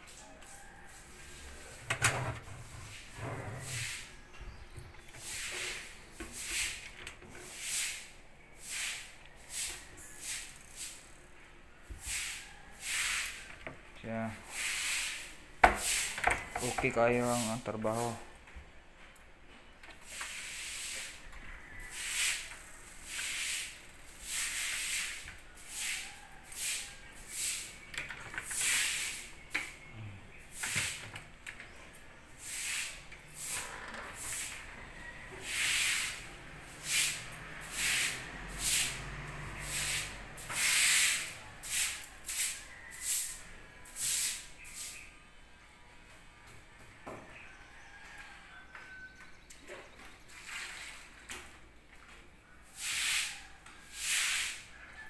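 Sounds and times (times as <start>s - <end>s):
hand rubbing on cabinet doors: 0.4s - 6.9s, 32.4s - 41.4s
hissing noise: 32.4s - 43.3s.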